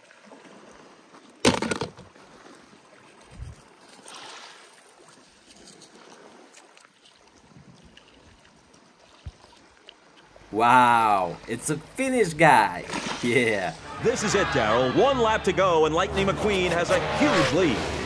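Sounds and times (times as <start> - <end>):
small waves washing on pebbles: 0.0 - 13.7.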